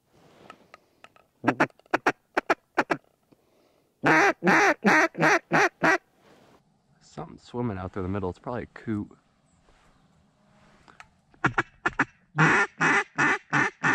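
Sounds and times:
duck quacking: 4.0 - 6.0, 11.4 - 13.9.

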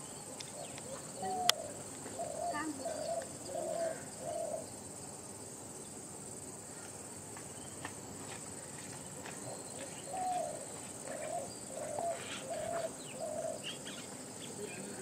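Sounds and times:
dove cooing: 0.5 - 4.7, 9.4 - 15.0.

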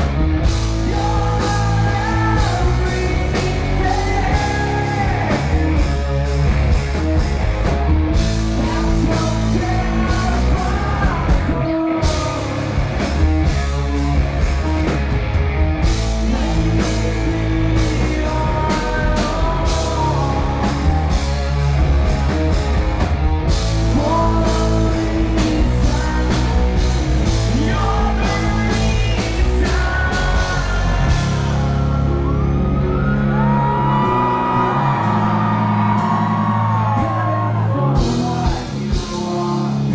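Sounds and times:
live rock band: 0.0 - 39.9
person singing: 0.7 - 6.1, 8.5 - 12.9, 16.2 - 21.4, 23.8 - 39.9.

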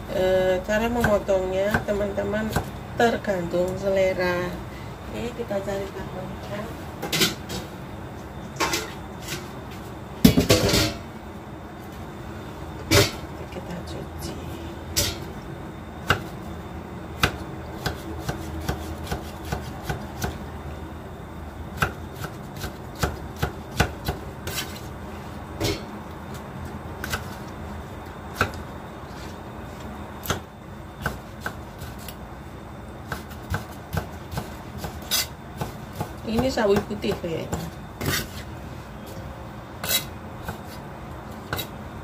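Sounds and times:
knife chopping on cutting board: 17.2 - 20.4.

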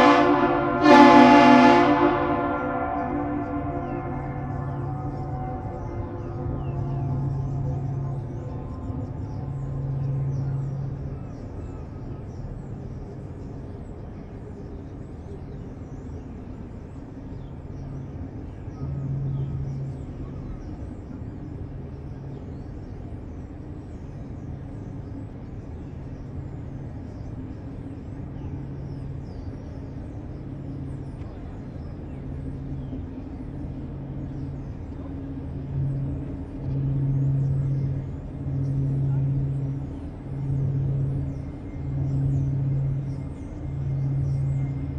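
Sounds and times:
low engine drone: 0.0 - 44.9.

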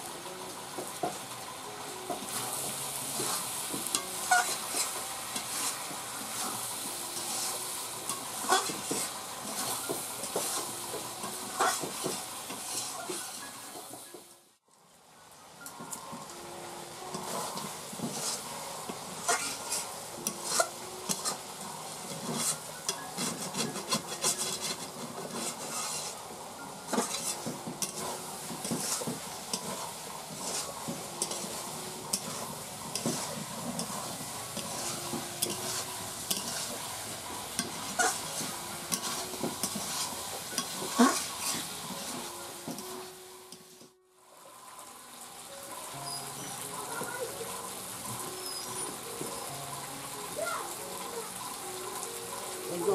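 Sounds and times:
food sizzling: 0.0 - 52.9
metal spatula scraping pan: 3.1 - 13.5, 17.1 - 18.5, 19.2 - 42.9
spatula clinking against pan: 32.1 - 36.7.

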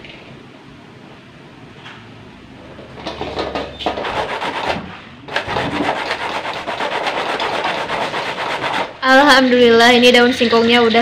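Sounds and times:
coconut grating rasping strokes: 3.8 - 9.1.

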